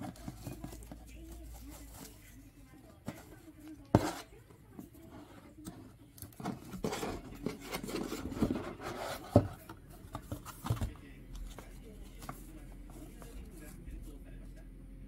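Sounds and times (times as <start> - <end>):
rustling of handled objects: 0.0 - 14.2.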